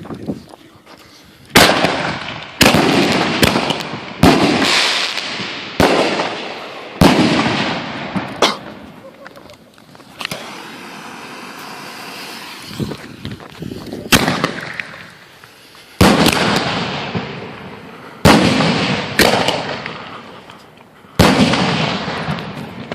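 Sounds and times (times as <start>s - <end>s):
firework hissing: 1.1s - 22.7s
loud firework bangs: 1.5s - 9.0s, 10.0s - 13.3s, 14.0s - 15.3s, 16.0s - 20.4s, 21.2s - 22.9s
small firework pops: 7.0s - 10.7s, 14.1s - 17.3s, 18.2s - 22.9s.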